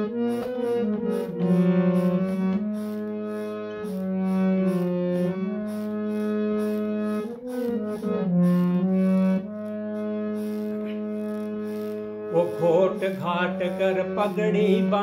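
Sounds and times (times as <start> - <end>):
harmonium playing: 0.0 - 15.0
man singing: 12.3 - 15.0.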